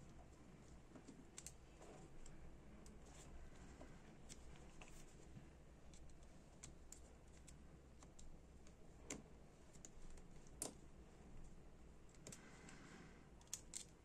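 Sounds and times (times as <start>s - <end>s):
low steady hum: 0.0s - 14.0s
small metal clicks and scrapes: 13.4s - 14.0s.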